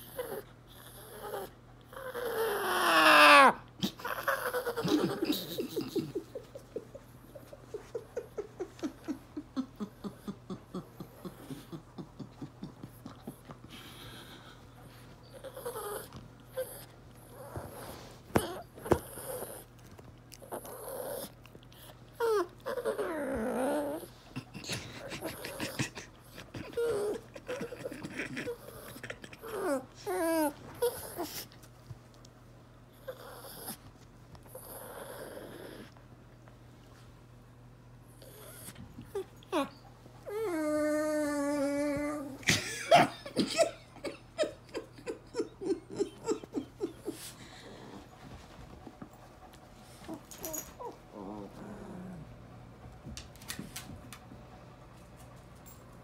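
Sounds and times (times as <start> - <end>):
small dog whimpering: 0.0 - 6.0, 15.2 - 19.7, 20.4 - 24.2, 25.0 - 31.5, 33.0 - 33.8, 34.5 - 36.0, 38.2 - 42.5, 50.1 - 52.2
rustling of bedding: 47.1 - 51.8.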